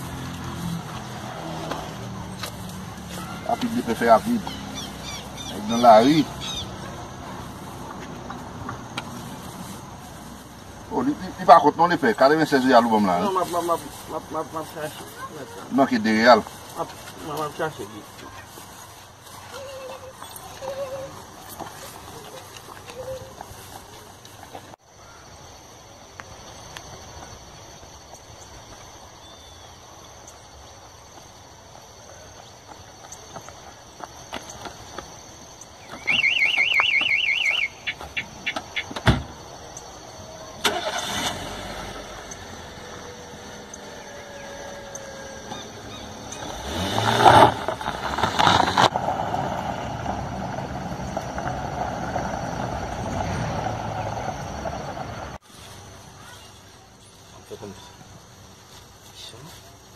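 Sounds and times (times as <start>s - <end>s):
car engine driving past: 0.0s - 14.6s, 39.5s - 55.4s
tyres crunching on gravel: 0.0s - 25.2s, 31.1s - 59.9s
insects shrilling: 0.0s - 25.7s, 33.7s - 59.9s
bird chirp: 2.2s - 7.4s, 35.6s - 39.0s, 42.2s - 46.6s.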